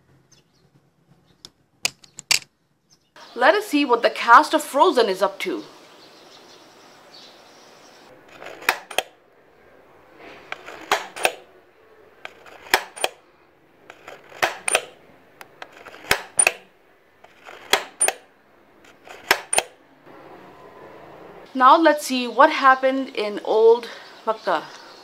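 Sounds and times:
plastic toy viewer clicks: 8.4s - 9.1s, 10.5s - 11.4s, 13.9s - 16.6s.

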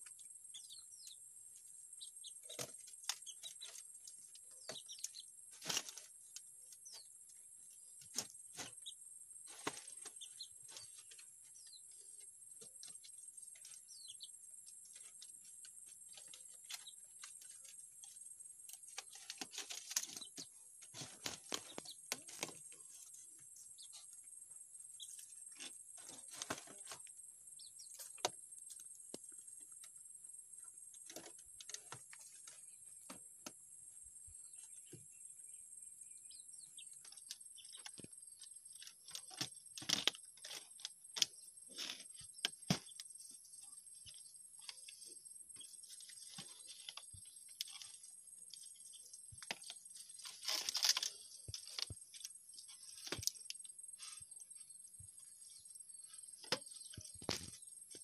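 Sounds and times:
faint bird chirps: 0.0s - 58.0s
palm fronds crackling and rustling: 5.5s - 6.4s, 18.7s - 22.9s, 38.7s - 42.9s, 44.1s - 54.2s.

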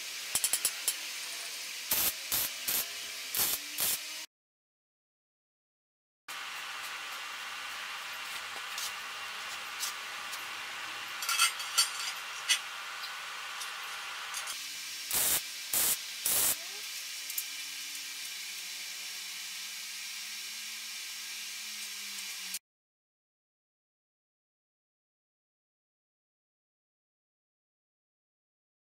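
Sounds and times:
arc welding hiss: 0.0s - 4.3s, 6.3s - 11.3s, 12.0s - 22.6s
tack weld bursts: 1.9s - 4.0s, 14.3s - 16.6s.

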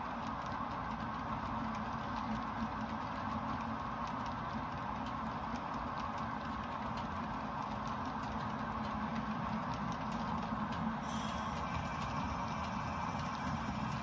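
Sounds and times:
model train wheels clicking: 0.0s - 14.0s.

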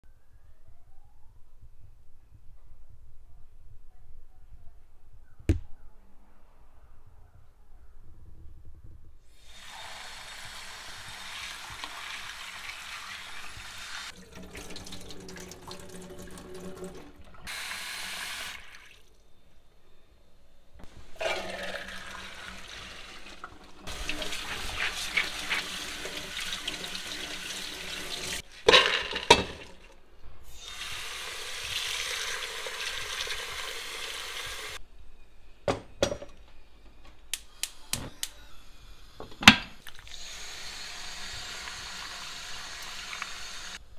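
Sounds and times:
tap water running into bowl: 10.4s - 19.0s.

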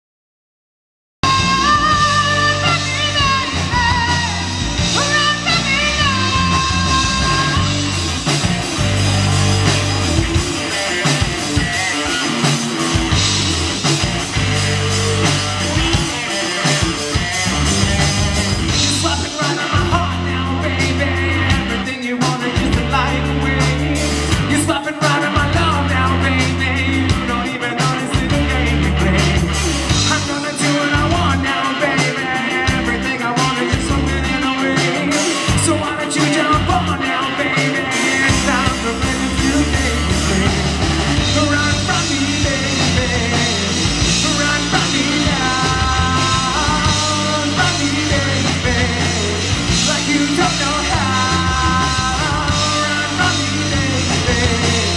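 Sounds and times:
male singer: 1.2s - 7.8s, 18.6s - 54.9s
bass guitar: 1.2s - 54.9s
drum kit: 1.2s - 54.9s
electric guitar: 1.2s - 54.9s.

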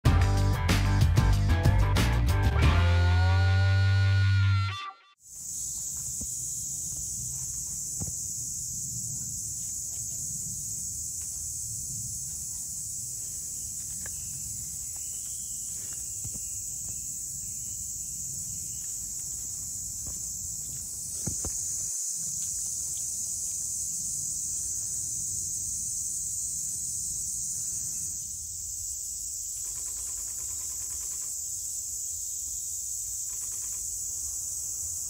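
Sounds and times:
guitar tune: 0.1s - 5.1s
high-pitched insect chorus: 5.2s - 35.0s.

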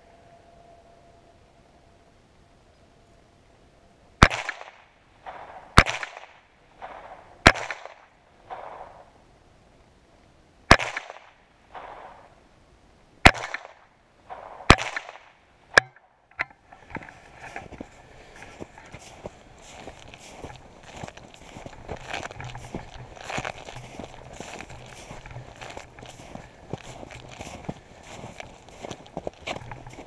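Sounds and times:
rifle shots with echo: 4.2s - 9.2s, 10.7s - 12.4s, 13.2s - 16.0s
footsteps in snow: 16.8s - 30.0s.

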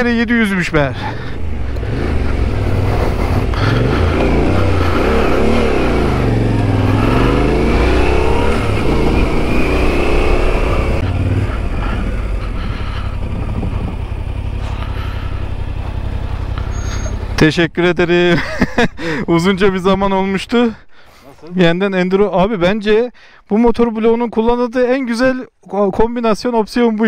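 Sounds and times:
motorcycle engine revving: 0.9s - 17.5s.

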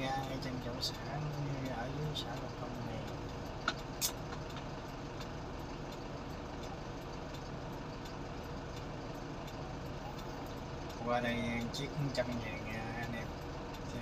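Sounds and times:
faint ticking: 0.0s - 14.0s
ferry engines droning: 0.0s - 14.0s.

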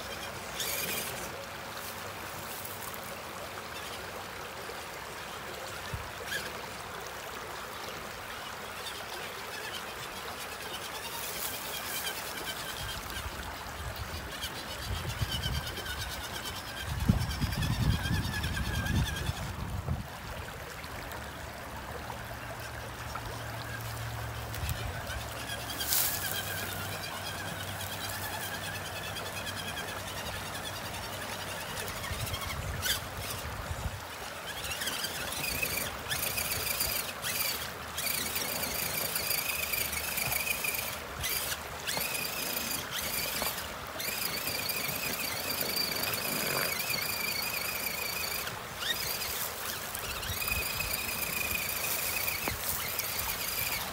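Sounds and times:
creek water splashing: 0.0s - 53.9s
electric drive whining: 22.3s - 53.9s.

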